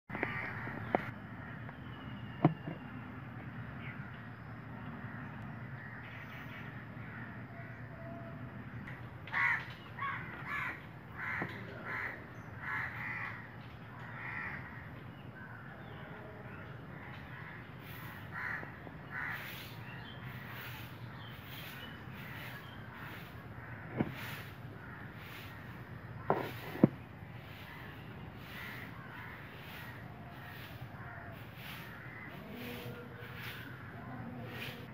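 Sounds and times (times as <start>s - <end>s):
crow cawing: 0.1s - 1.6s, 5.0s - 8.4s, 9.3s - 15.8s, 16.9s - 21.3s, 22.2s - 26.9s, 27.5s - 34.7s.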